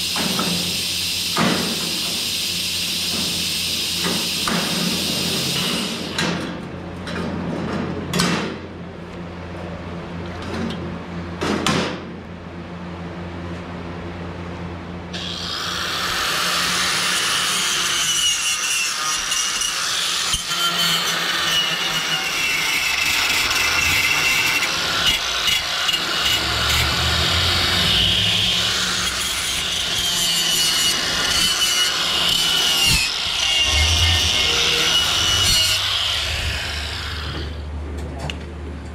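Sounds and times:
angle grinder grinding steel: 0:15.2 - 0:37.7.

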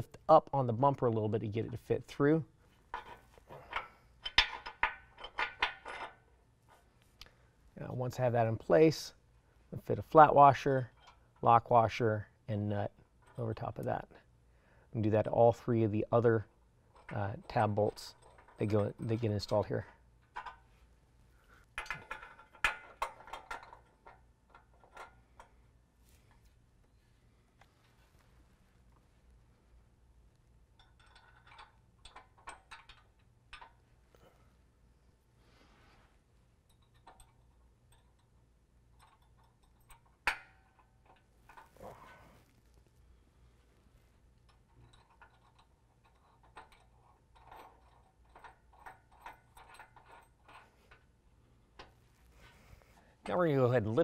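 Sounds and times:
metal bolt hardware clicking: 0:02.9 - 0:06.2, 0:21.8 - 0:25.5, 0:30.8 - 0:33.8, 0:36.7 - 0:41.8.

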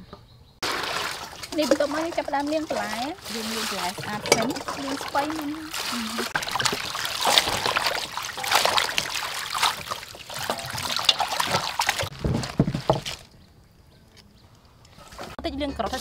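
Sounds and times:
water splashing in a basin: 0:00.6 - 0:13.4.

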